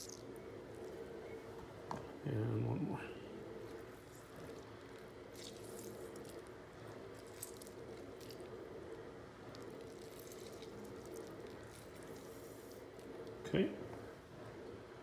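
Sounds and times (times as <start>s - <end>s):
steady low hum: 0.0s - 15.0s
wet squishing of food: 3.7s - 13.2s.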